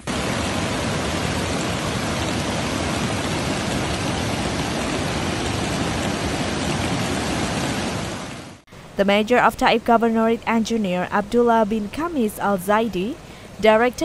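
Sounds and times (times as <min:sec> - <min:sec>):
floodwater rushing: 0:00.0 - 0:08.6.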